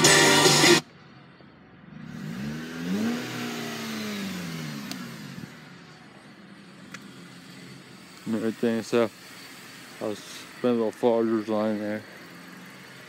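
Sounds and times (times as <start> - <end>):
road noise: 0.0 - 13.0
car engine speeding up: 1.9 - 6.0.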